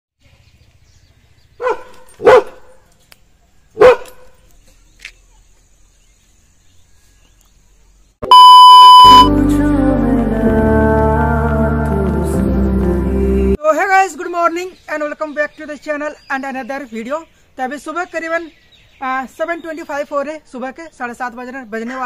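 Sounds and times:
dog barking: 1.6s - 2.8s, 3.8s - 4.3s
electronic beep tone: 8.2s - 9.3s
background music: 9.2s - 13.6s.

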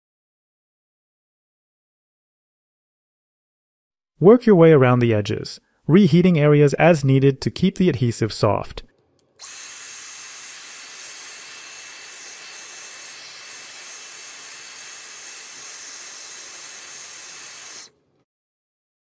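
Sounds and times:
hairdryer blowing: 9.4s - 17.9s.

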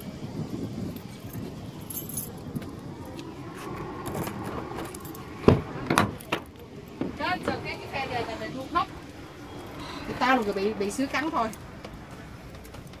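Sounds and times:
low background rumble: 0.0s - 13.0s
small metal objects jingling: 1.2s - 2.4s.

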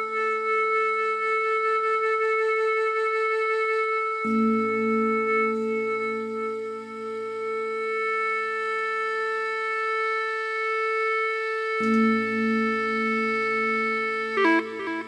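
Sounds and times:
low steady backing: 0.0s - 15.0s
reed pipe holding long note: 0.0s - 15.0s.

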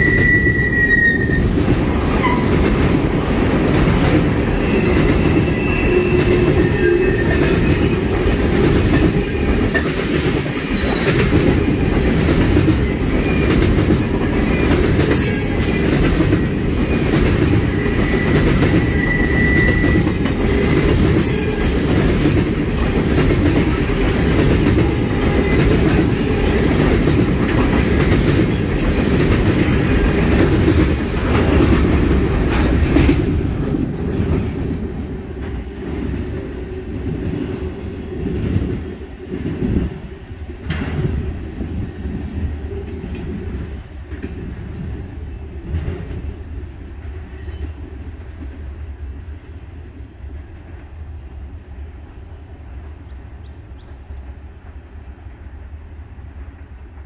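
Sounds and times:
wheel squeal: 0.0s - 1.5s, 17.7s - 20.2s
freight train rumbling past: 0.0s - 57.0s.

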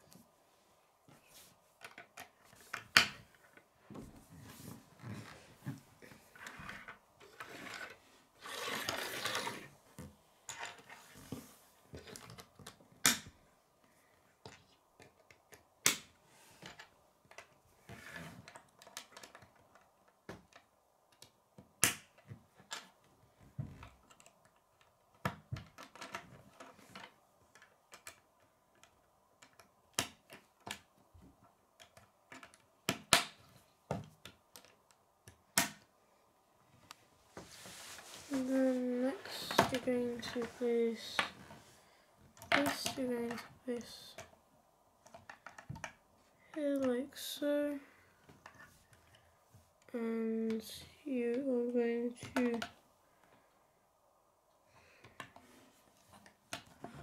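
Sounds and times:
plastic pieces clicking together: 18.5s - 19.9s.

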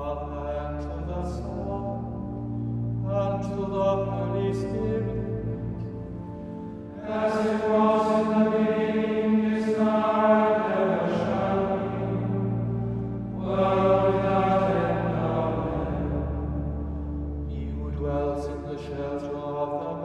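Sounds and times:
monks singing plainchant: 7.0s - 16.4s.

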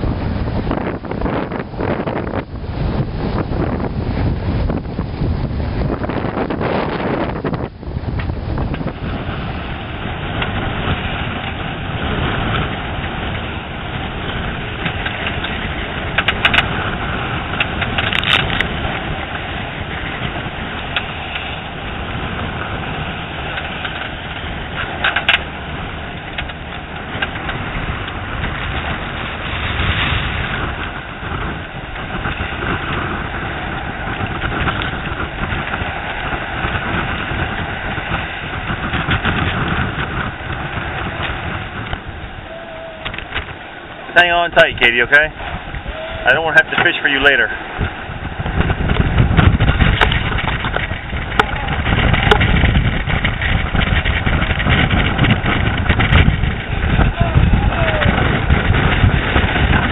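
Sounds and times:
waves rushing along hull: 0.0s - 59.9s
wind buffeting microphone: 0.0s - 59.9s.

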